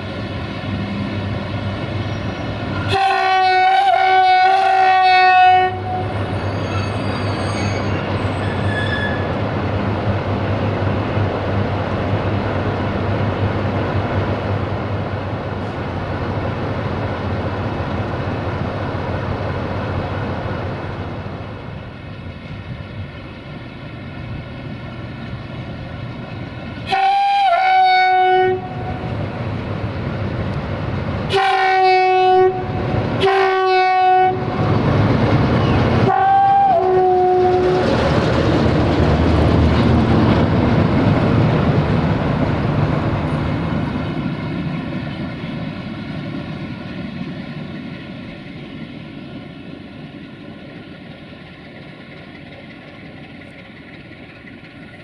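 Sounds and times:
diesel locomotive engine idling: 0.0s - 55.0s
locomotive rumbling past: 0.0s - 55.0s
locomotive air horn blasts: 2.8s - 6.2s, 26.8s - 29.1s, 31.3s - 34.6s, 36.0s - 37.8s.

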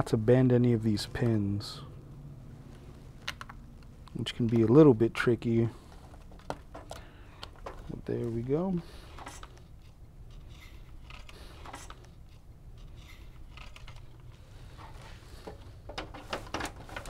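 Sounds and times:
handling scrapes and clicks: 9.1s - 17.0s.

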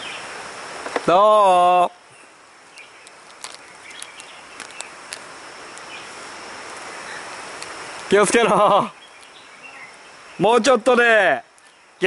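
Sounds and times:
shallow stream washing: 0.0s - 10.5s
high insect hum: 0.0s - 12.0s
stones knocking underfoot: 3.0s - 5.9s.

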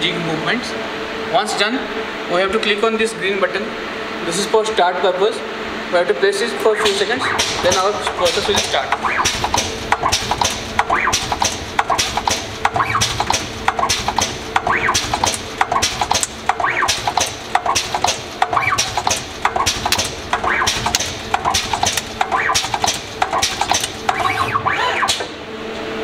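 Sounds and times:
spot welder clicks and snaps: 6.9s - 24.5s.

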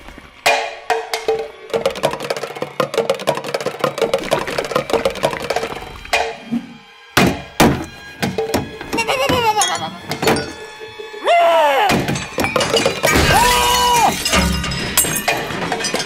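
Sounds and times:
loud sharp knocks: 7.2s - 8.8s
cartoon music: 8.3s - 14.4s.

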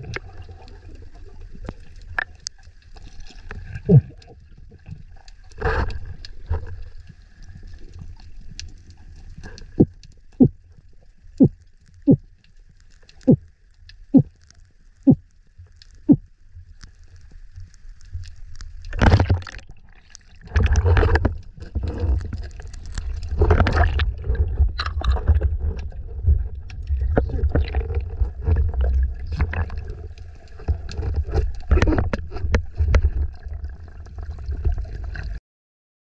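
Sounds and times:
gurgling bubbles: 0.0s - 8.4s, 9.2s - 12.3s, 18.9s - 35.4s
underwater water rumble: 0.0s - 35.4s.

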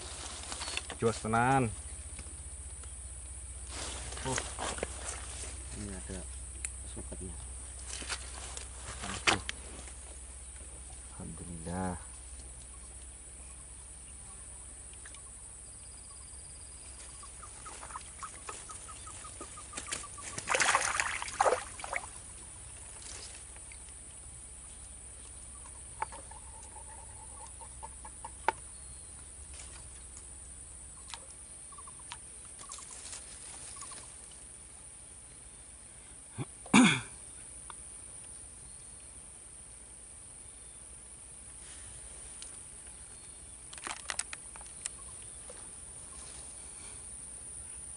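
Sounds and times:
rustling: 0.0s - 1.3s, 3.6s - 6.8s, 7.4s - 11.1s, 41.6s - 47.0s
bird clucking: 17.1s - 20.6s, 25.5s - 28.6s.

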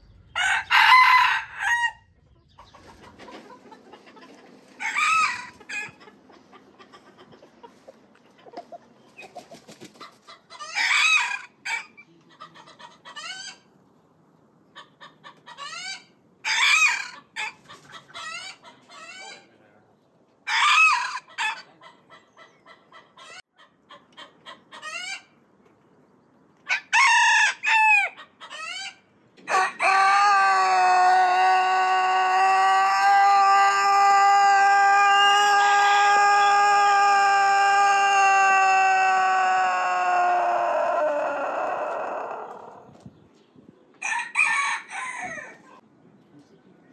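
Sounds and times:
long held rooster crow: 0.3s - 2.0s, 29.5s - 42.8s, 44.0s - 45.6s
roosters crowing: 0.3s - 2.2s, 4.6s - 6.3s, 10.5s - 12.0s, 15.6s - 19.3s, 20.4s - 21.7s, 26.6s - 43.0s, 44.0s - 45.8s.

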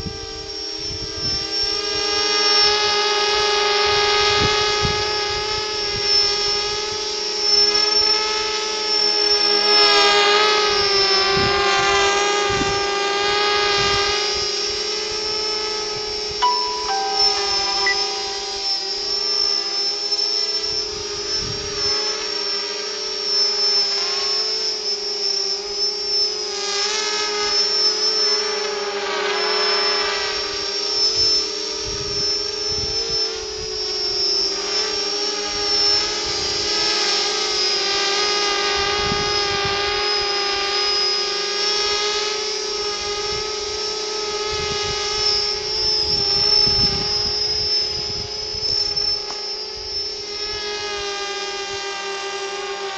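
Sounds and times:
quadcopter motors whining: 0.0s - 15.8s, 21.7s - 31.6s, 33.6s - 52.9s.

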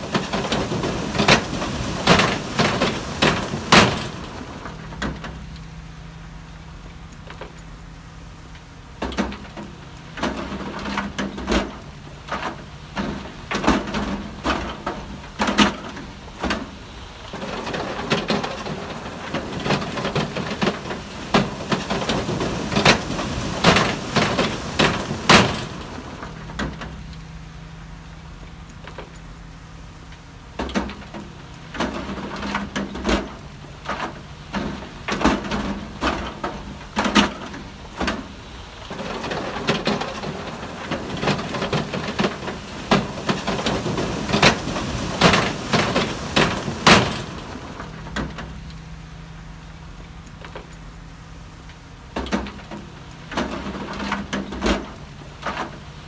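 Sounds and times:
heavy machinery engine running: 0.0s - 56.0s
metallic clanks and knocks: 9.0s - 27.2s, 30.6s - 48.8s, 52.1s - 55.9s.

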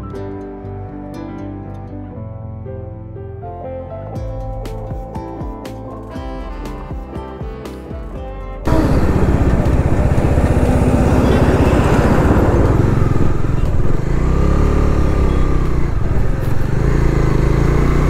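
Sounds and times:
motorcycle engine running: 6.5s - 18.0s
wind rumble on microphone: 8.7s - 14.6s.

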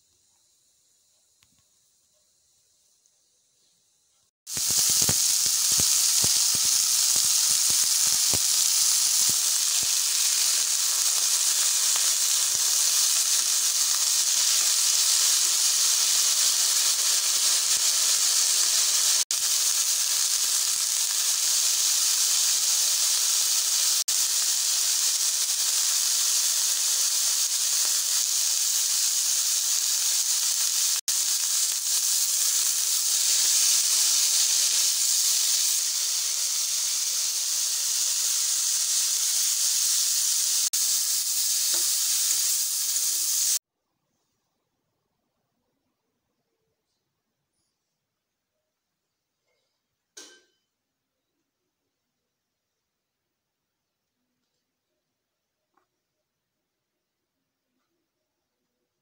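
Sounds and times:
oil spitting crackles: 4.5s - 43.6s
vegetables sizzling in hot oil: 4.5s - 43.6s.

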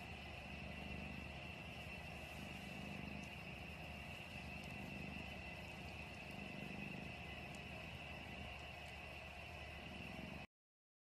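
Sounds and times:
cat purring: 0.0s - 10.5s.

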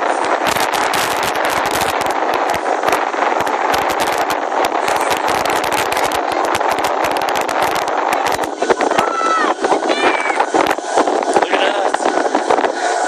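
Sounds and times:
zipline rushing noise: 0.0s - 13.0s
crackling clicks: 0.1s - 9.9s.

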